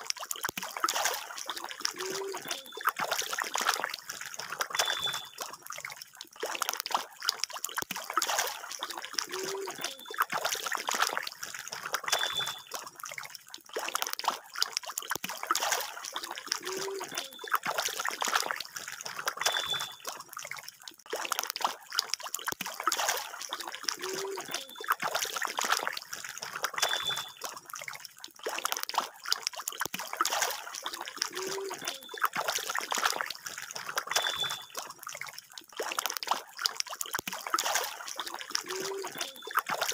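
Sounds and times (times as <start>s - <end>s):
water splashing and trickling: 0.0s - 39.9s
short high chirp: 4.8s - 5.4s.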